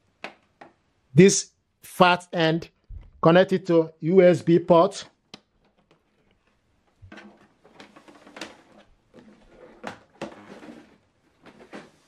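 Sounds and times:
cable rubbing on plastic case: 5.6 - 12.0.

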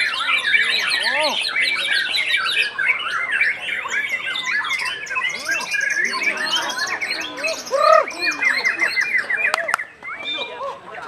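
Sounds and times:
bird singing whistles and chirps: 0.0 - 10.6
other songbirds singing: 0.0 - 11.0.

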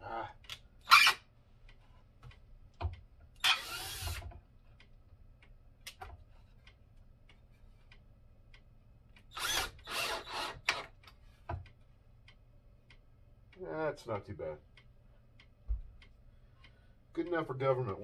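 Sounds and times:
cordless drill running: 3.4 - 4.3, 9.3 - 10.8.

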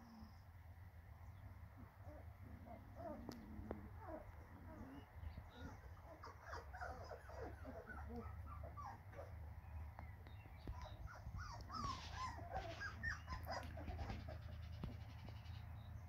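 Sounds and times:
puppies whimpering: 2.0 - 9.5, 10.6 - 15.3.

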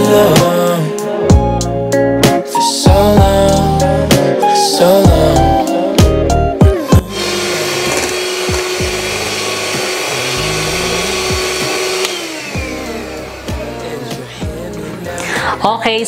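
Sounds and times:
background music: 0.0 - 16.0
electric hand mixer running: 6.9 - 15.1.

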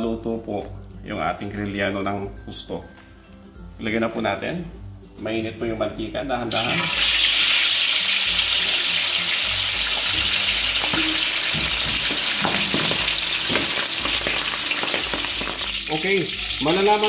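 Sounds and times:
fish deep-frying in oil: 6.5 - 17.0.

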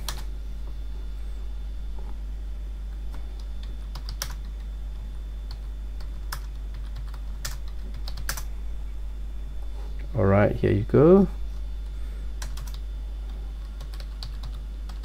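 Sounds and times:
steady low hum: 0.0 - 15.0
computer keyboard keystrokes: 3.1 - 4.6, 5.5 - 8.5, 12.4 - 12.8, 13.6 - 15.0.

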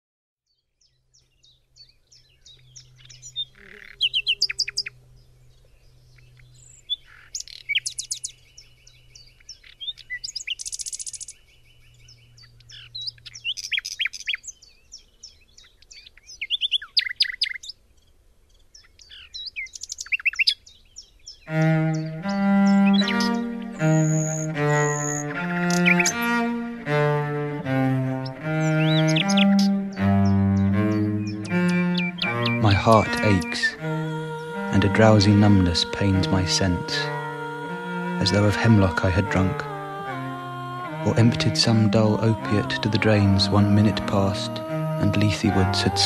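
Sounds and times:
songbird singing: 0.4 - 46.0
low bowed string note: 21.5 - 46.0.

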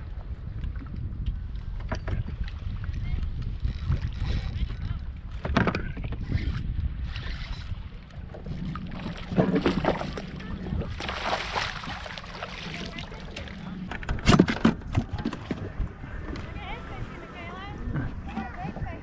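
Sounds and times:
wind buffeting microphone: 0.0 - 19.0
fish splashing in water: 8.8 - 13.7.

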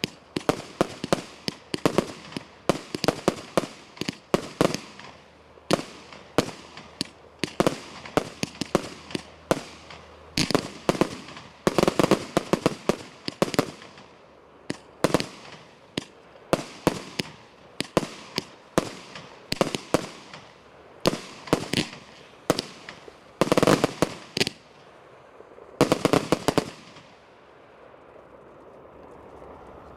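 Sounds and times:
firework bangs: 0.0 - 24.7, 25.8 - 27.2.

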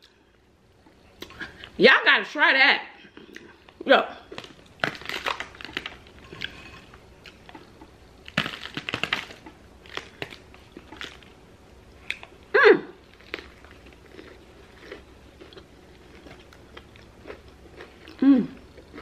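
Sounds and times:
crunchy snacks crackling: 3.3 - 11.4, 12.0 - 19.0.

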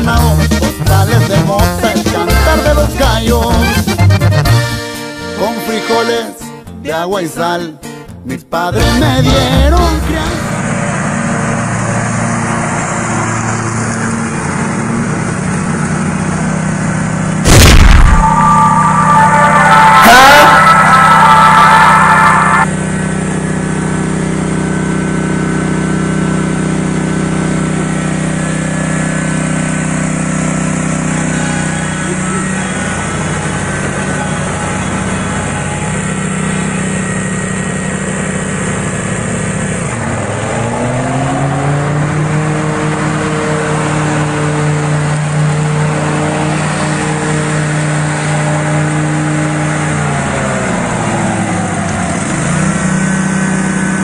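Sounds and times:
small gasoline engine running: 10.4 - 17.4, 22.8 - 40.4, 42.9 - 54.0.

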